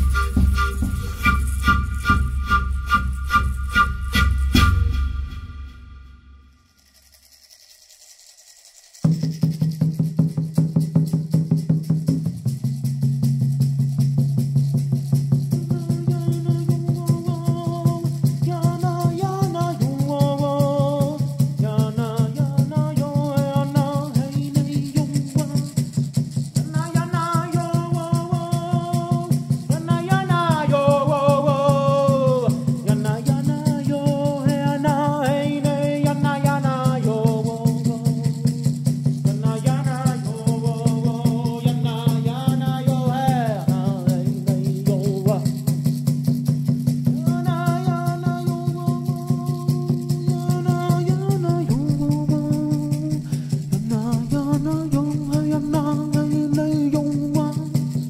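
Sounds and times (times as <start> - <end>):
rattle shaken rhythmically: 0.0 - 58.0
person chanting: 47.2 - 57.8.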